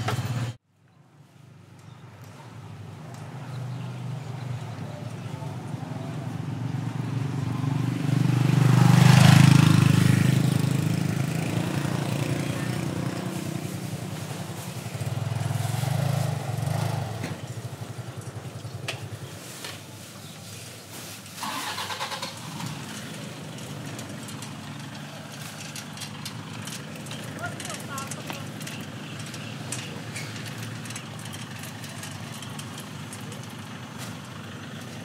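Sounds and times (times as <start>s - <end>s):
motorbike engine running: 4.3s - 19.6s, 22.4s - 35.0s.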